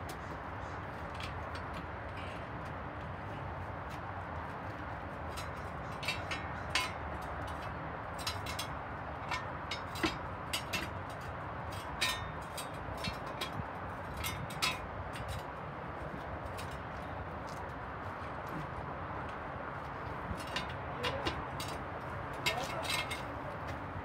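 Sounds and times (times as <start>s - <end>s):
metal tools clinking: 5.3s - 15.5s, 22.4s - 23.4s.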